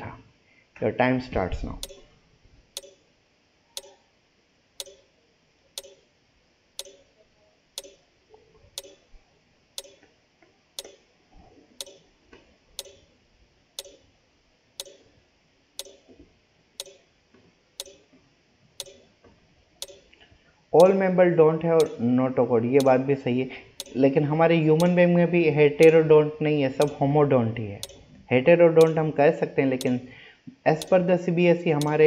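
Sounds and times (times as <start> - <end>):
clock ticking: 1.8 - 2.0, 2.8 - 3.0, 3.8 - 4.0, 4.8 - 5.1, 5.8 - 6.0, 6.8 - 7.0, 7.8 - 8.0, 8.8 - 9.0, 9.8 - 10.0, 10.8 - 11.0, 11.8 - 12.0, 12.8 - 13.0, 13.8 - 14.0, 14.8 - 15.0, 15.8 - 16.1, 16.8 - 17.0, 17.8 - 18.0, 18.8 - 19.0, 19.8 - 20.1, 20.8 - 21.0, 21.8 - 22.0, 23.8 - 24.0, 24.8 - 25.0, 26.8 - 27.0, 27.8 - 28.1, 28.8 - 29.0, 30.8 - 31.0, 31.8 - 32.0.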